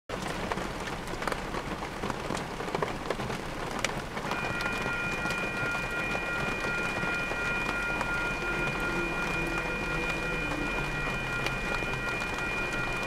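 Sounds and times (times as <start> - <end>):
pouring rain: 0.1 - 13.0
raindrops tapping: 0.1 - 13.0
crossing warning bell: 4.2 - 13.0.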